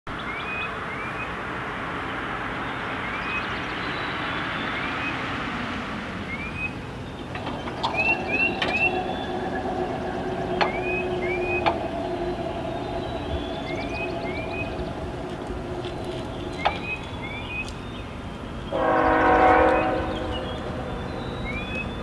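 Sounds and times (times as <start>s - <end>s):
bird chirping: 0.1s - 1.4s, 6.3s - 22.0s
distant rushing noise: 0.7s - 22.0s
crossing warning bell ringing: 6.7s - 17.8s.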